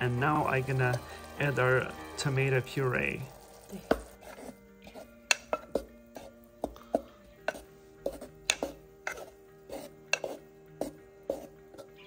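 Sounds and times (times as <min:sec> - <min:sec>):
soft background music: 0:00.0 - 0:12.0
wooden spoon knocking saucepan: 0:06.6 - 0:09.3.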